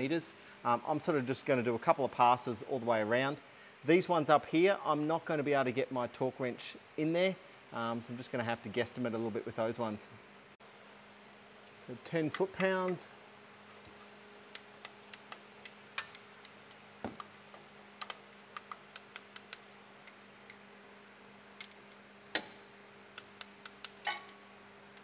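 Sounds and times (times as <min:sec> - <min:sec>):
hand ratchet clicking: 0:23.2 - 0:24.2.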